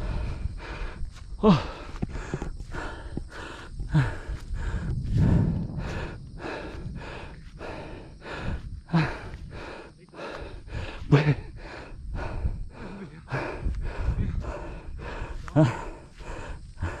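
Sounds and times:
low rumble: 0.0 - 9.8
heavy quick breathing: 0.0 - 17.0
voiced gasps: 0.0 - 17.0.

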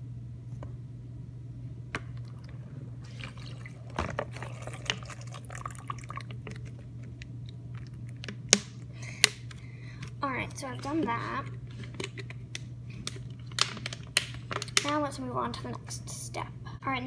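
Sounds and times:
low hum: 0.0 - 17.0
water pouring into plastic bowl: 3.0 - 6.8.

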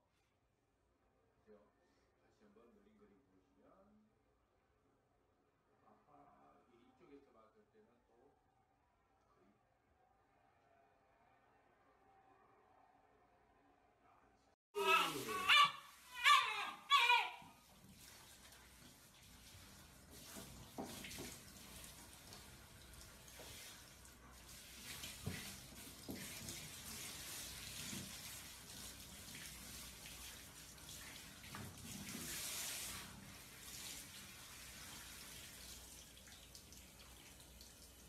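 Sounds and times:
shower water spraying: 14.8 - 38.0.

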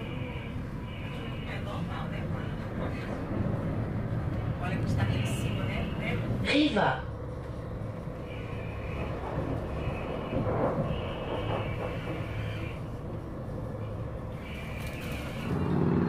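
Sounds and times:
train wheels rumbling on track: 0.0 - 16.0.

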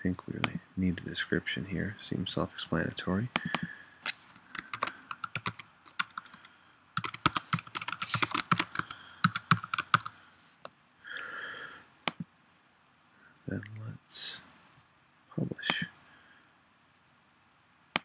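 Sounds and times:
typing on computer keyboard: 4.5 - 10.1.

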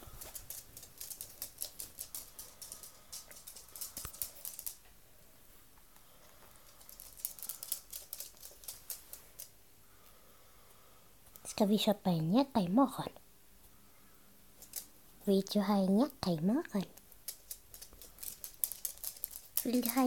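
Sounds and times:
dog claws ticking on wooden floor: 0.2 - 4.8, 17.0 - 20.0.

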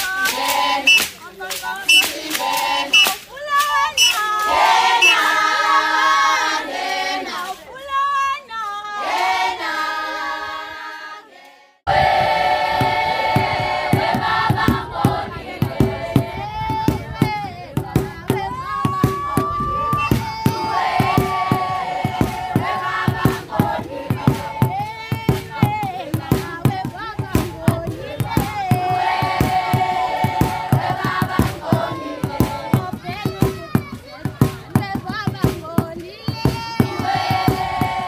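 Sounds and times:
group singing in chorus: 0.0 - 3.3, 4.0 - 7.6, 8.8 - 33.1, 36.8 - 38.0.

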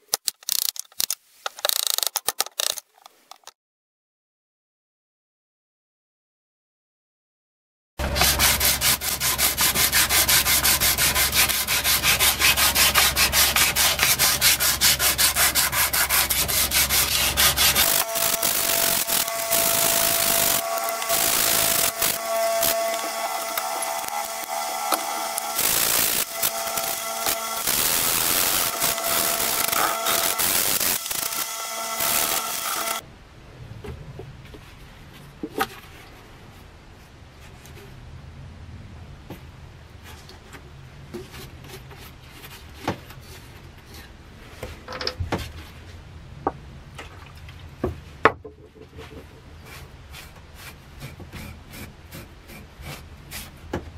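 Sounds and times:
sandpaper scratching on wood: 8.0 - 33.0.

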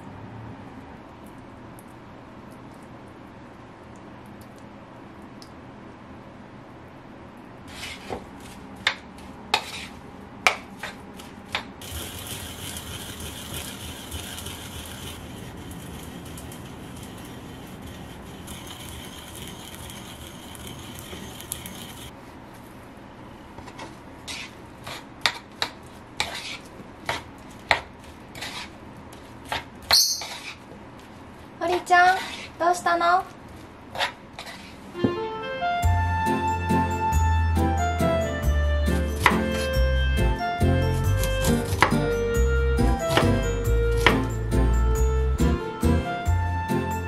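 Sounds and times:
pestle grinding in mortar: 11.8 - 22.1, 38.9 - 42.0.

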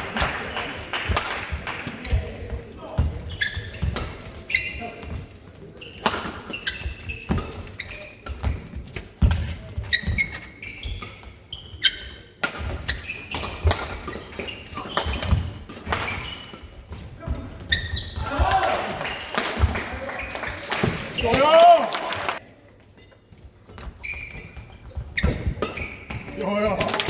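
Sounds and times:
shoes squeaking on floor: 1.9 - 21.5, 23.0 - 26.8.

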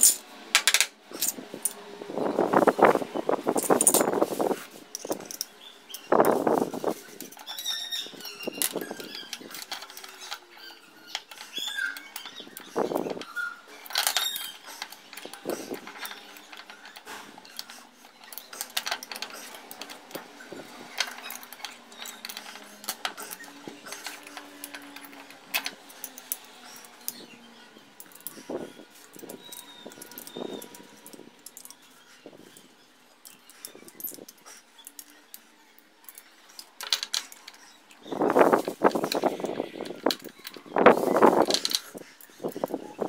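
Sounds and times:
small metal clinks: 3.5 - 4.2, 4.9 - 43.0
wrench turning nuts: 3.6 - 4.2, 4.9 - 42.8.

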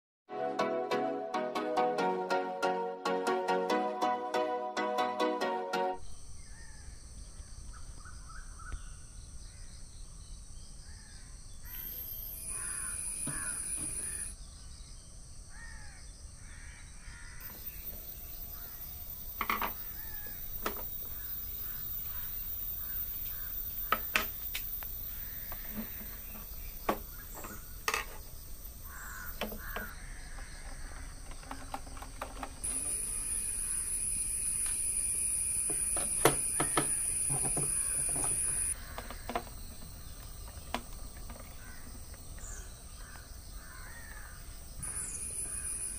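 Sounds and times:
crows cawing: 12.5 - 14.3, 15.5 - 17.7, 18.5 - 18.8, 19.8 - 24.3, 25.0 - 26.3, 28.8 - 31.5, 36.5 - 39.5, 41.5 - 45.8.

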